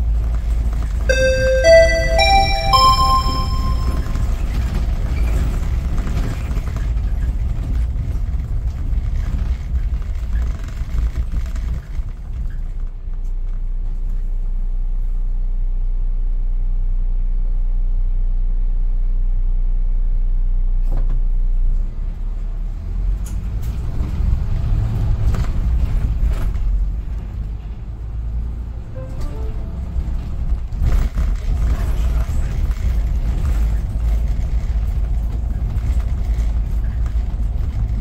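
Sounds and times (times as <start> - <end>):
bus engine and road noise: 5.2 - 15.0, 18.4 - 38.0.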